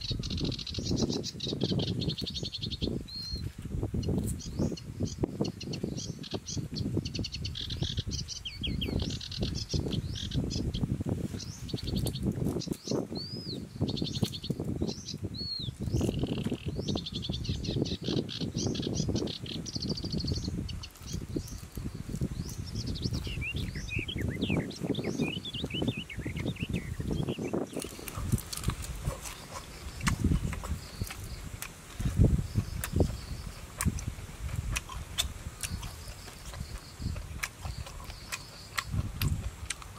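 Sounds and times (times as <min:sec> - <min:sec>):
birds trilling: 0:04.4 - 0:31.6.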